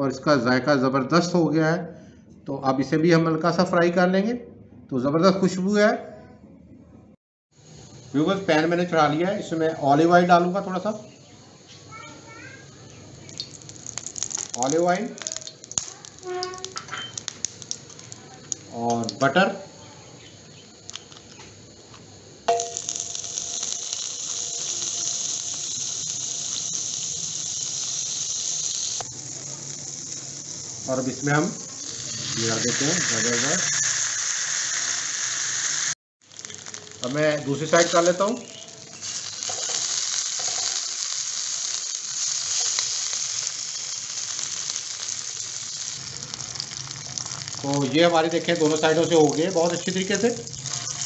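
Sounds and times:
butter sizzling in oil: 7.6 - 19.6, 20.2 - 51.0
small oil pops: 13.3 - 19.2, 20.8 - 21.5.

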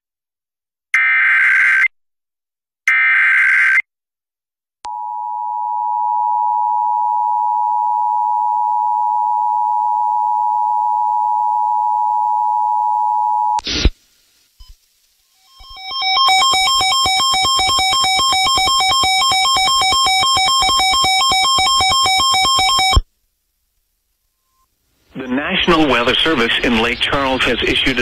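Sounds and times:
two-tone attention signal: 15.5 - 23.0.

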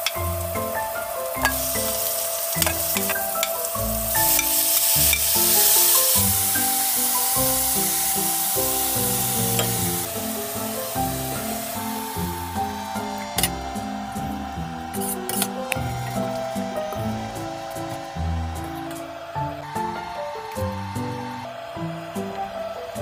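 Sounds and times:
vegetables sizzling in a wok: 0.0 - 23.0
metal ladle clicking on pan: 1.4 - 3.6, 9.6 - 9.9.

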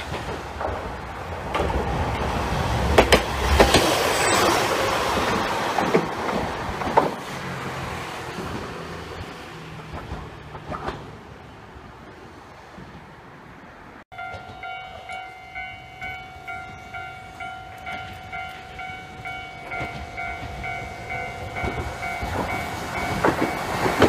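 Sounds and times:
wheels clacking over rail joints: 0.0 - 13.1, 14.2 - 24.0
streetcar running past: 0.0 - 24.0.

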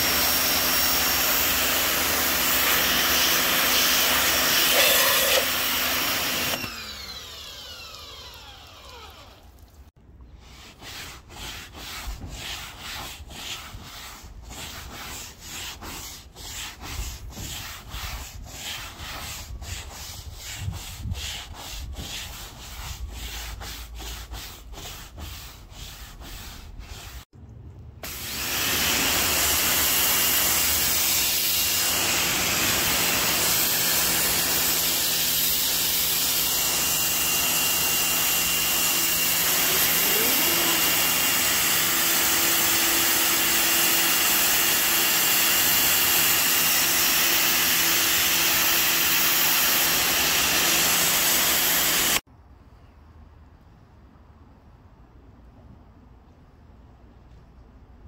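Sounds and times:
brush scrubbing wet vehicle roof: 0.0 - 6.5, 10.3 - 27.3, 39.4 - 41.2
pressure washer spraying: 0.0 - 6.8, 28.0 - 46.4, 47.1 - 52.2.

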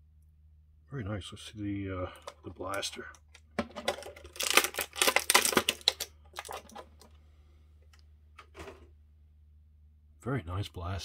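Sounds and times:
plastic packaging crinkling: 2.2 - 7.1.

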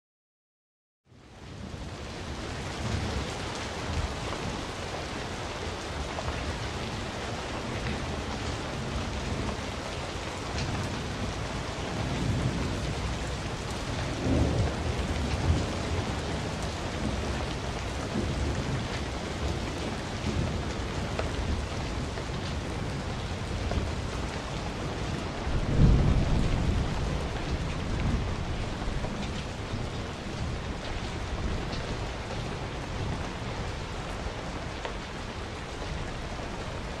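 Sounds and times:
steady rain: 1.1 - 37.0
low rolls of thunder: 1.2 - 37.0.

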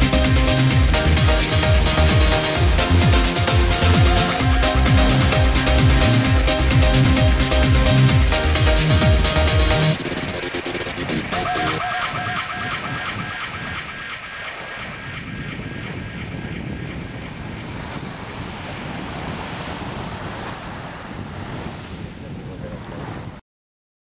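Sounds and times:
wind rumbling on microphone: 0.0 - 23.4
small waves washing on sand: 17.7 - 23.4.

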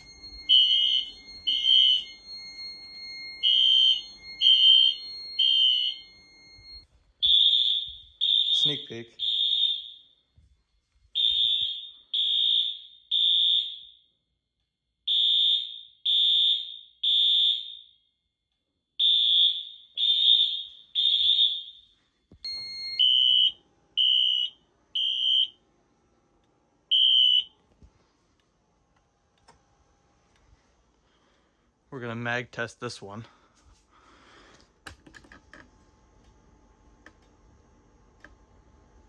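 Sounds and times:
fire alarm horn blasts: 0.0 - 10.3, 11.1 - 14.1, 15.1 - 18.0, 19.0 - 25.6, 26.9 - 27.7.

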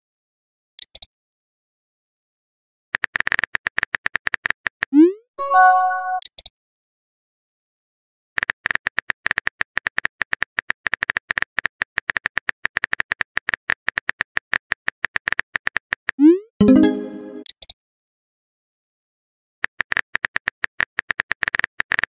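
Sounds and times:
rapid keyboard clicks: 3.0 - 4.9, 8.4 - 16.2, 19.6 - 22.0.

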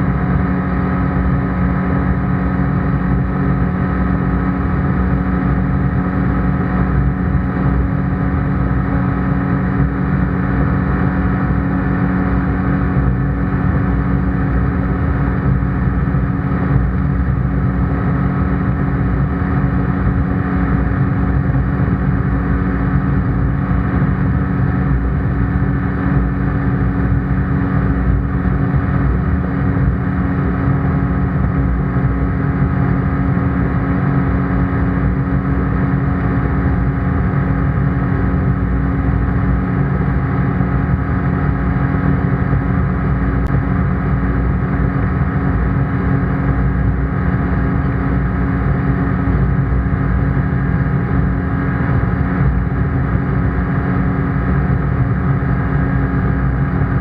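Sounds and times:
ultralight engine and propeller drone: 0.0 - 57.0.

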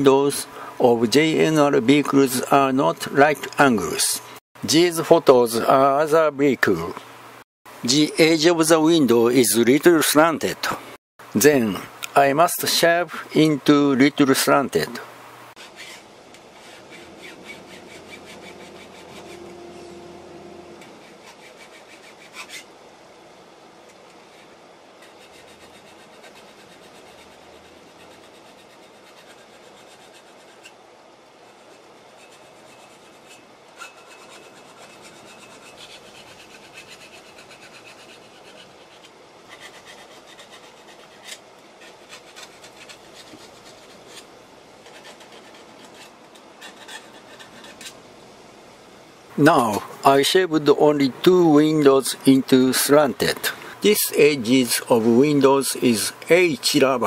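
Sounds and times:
needle file rasping on brass: 15.6 - 20.0, 20.8 - 22.7, 24.2 - 30.8, 31.4 - 48.0.

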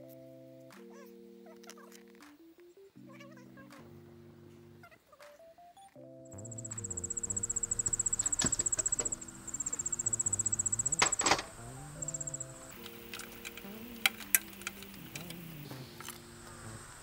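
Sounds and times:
background music of held notes: 0.0 - 17.0
insect trilling: 6.3 - 17.0.

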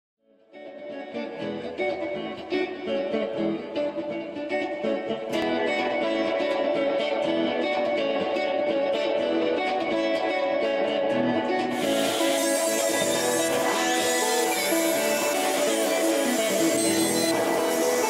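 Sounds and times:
plucked guitar music: 0.4 - 18.0.

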